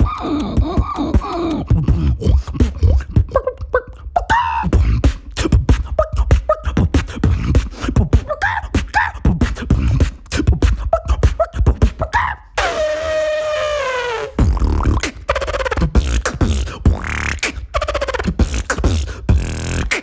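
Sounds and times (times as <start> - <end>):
beatboxing: 0.0 - 20.0.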